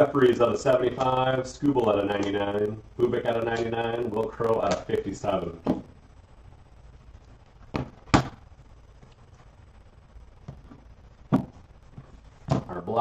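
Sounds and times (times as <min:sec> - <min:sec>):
cards knocking on a tabletop: 0:07.7 - 0:08.4, 0:10.5 - 0:12.7.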